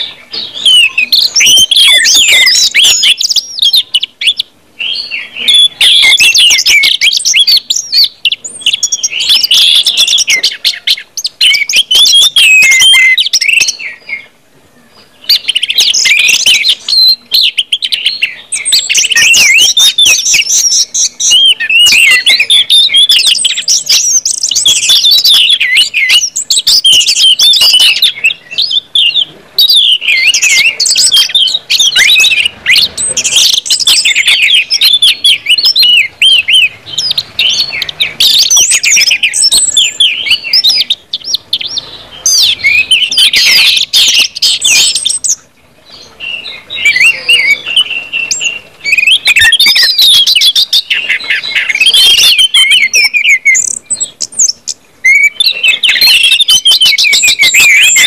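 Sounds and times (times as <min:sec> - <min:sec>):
thrush singing: 0:00.0 - 0:58.0.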